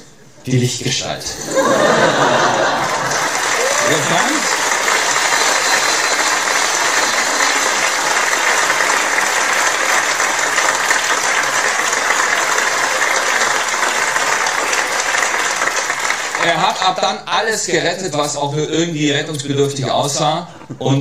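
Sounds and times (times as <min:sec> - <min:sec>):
audience applause: 0:01.6 - 0:17.0.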